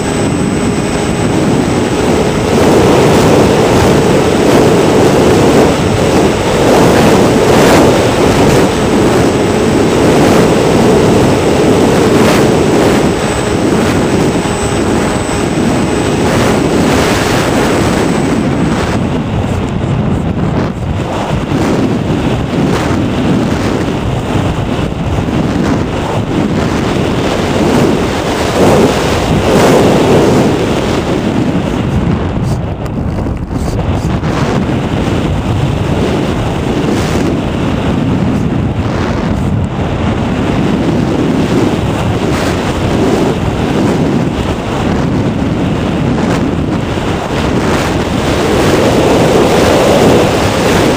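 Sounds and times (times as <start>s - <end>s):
faint high whine: 0.0s - 25.0s
electric motor and propeller drone: 0.0s - 50.9s
wind buffeting microphone: 0.0s - 50.9s.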